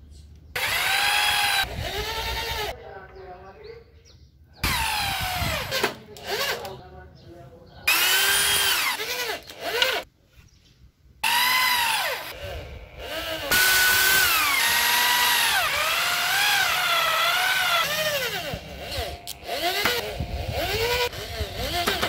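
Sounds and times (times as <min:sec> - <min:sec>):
electric drill motor whining: 0:00.5 - 0:02.8, 0:04.6 - 0:06.8, 0:07.9 - 0:10.1, 0:11.2 - 0:22.0.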